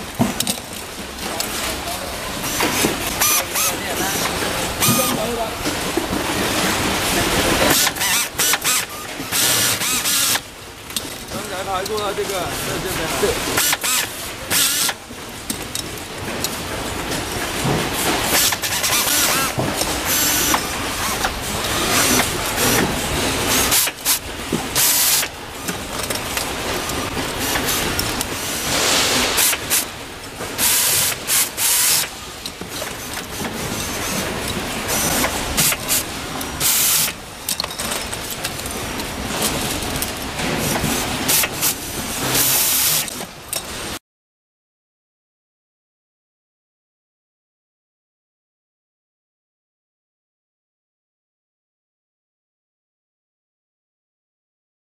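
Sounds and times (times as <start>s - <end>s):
workshop noise: 0.0s - 44.0s
pneumatic screwdriver air hiss: 7.7s - 10.4s, 13.6s - 15.0s, 18.3s - 22.8s, 23.5s - 24.2s, 24.8s - 25.3s, 27.4s - 29.9s, 30.6s - 32.1s, 36.6s - 37.2s, 40.7s - 43.1s.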